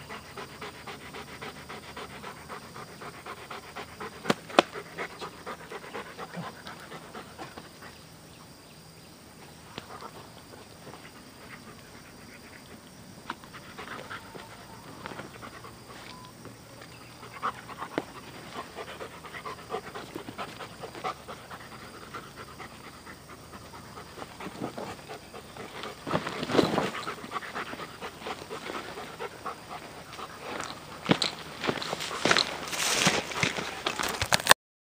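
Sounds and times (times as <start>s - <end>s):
dog panting: 0.0s - 8.1s, 9.8s - 16.4s, 17.0s - 34.2s
clicks and scuffs: 29.8s - 34.6s.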